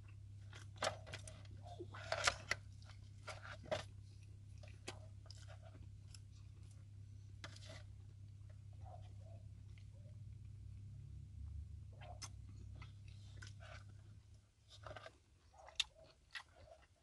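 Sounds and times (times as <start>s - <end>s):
steady low hum: 0.0s - 17.0s
chewing: 0.1s - 7.4s, 11.9s - 17.0s.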